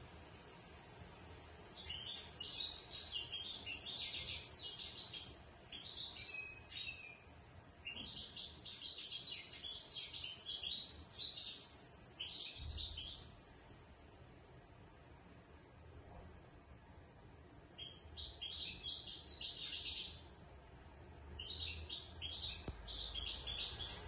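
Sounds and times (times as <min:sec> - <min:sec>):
goldfinch twittering song: 0:01.8 - 0:13.3, 0:17.8 - 0:20.3, 0:21.4 - 0:24.0.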